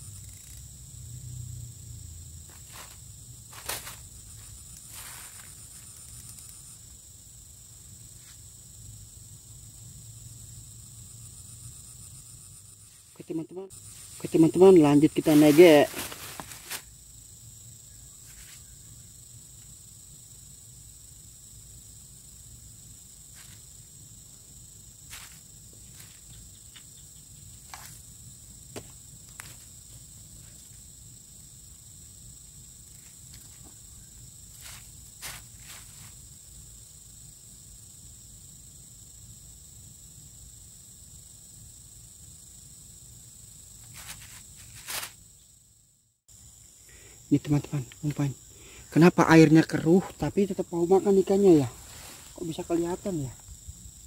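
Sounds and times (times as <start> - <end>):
insects droning: 0.0 - 54.0.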